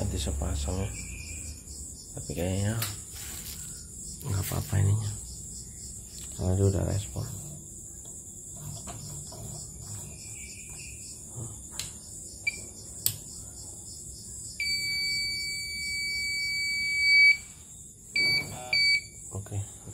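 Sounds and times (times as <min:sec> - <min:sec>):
steady high hiss: 0:00.0 - 0:08.4
machine buzzer beeping: 0:14.6 - 0:17.5, 0:18.2 - 0:19.2.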